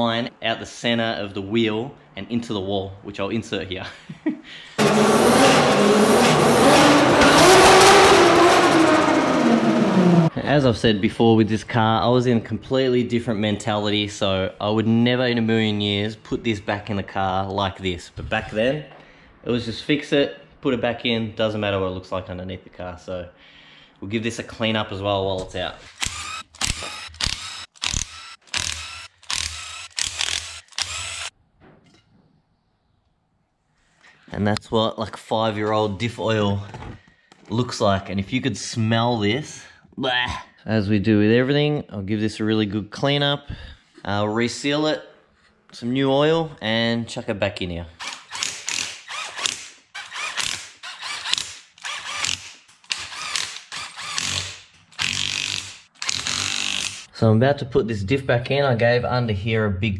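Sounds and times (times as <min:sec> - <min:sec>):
power driver whirring: 0:25.9 - 0:31.3, 0:49.2 - 0:57.1
socket ratchet clicking: 0:26.0 - 0:31.3, 0:48.0 - 0:57.1.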